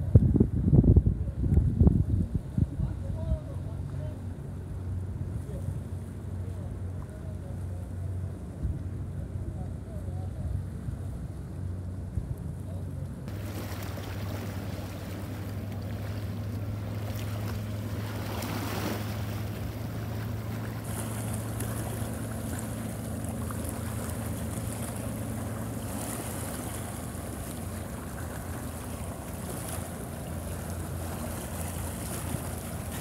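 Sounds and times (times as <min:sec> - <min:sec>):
wind noise on microphone: 0:00.0 - 0:03.4
steady low hum: 0:00.0 - 0:33.0
sea waves washing: 0:13.1 - 0:33.0.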